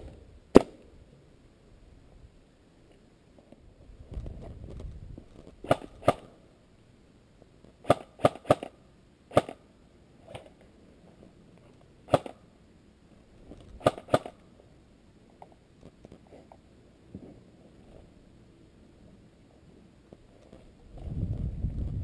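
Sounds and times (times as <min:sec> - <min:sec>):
airsoft gun shots: 0:05.6 - 0:06.3, 0:07.8 - 0:09.6, 0:12.1 - 0:12.4, 0:13.8 - 0:14.4.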